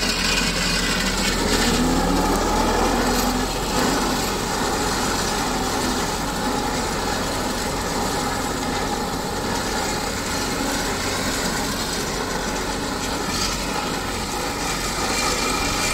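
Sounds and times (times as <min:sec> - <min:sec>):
rotary mower cutting grass: 0:00.0 - 0:15.9
tractor diesel engine running: 0:00.0 - 0:15.9.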